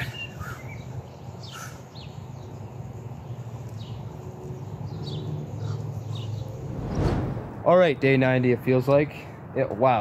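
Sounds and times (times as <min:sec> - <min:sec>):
birds chirping: 0:00.0 - 0:07.2.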